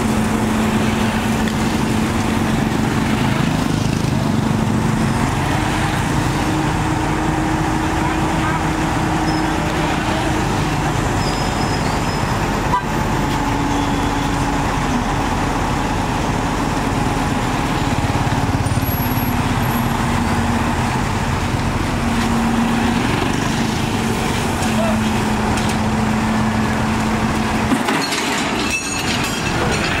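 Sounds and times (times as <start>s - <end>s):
heavy diesel engine running: 0.0s - 30.0s.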